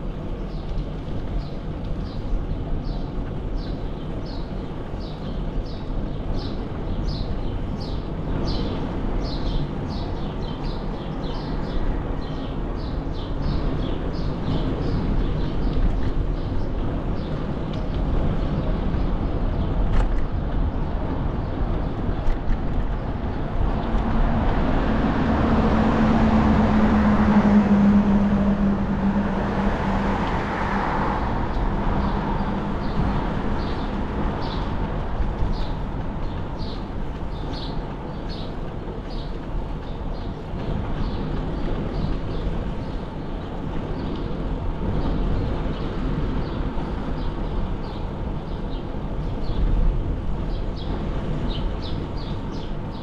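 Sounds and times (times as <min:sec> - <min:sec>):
wind and bicycle road noise: 0:00.0 - 0:53.0
motor vehicle passing: 0:23.5 - 0:35.7.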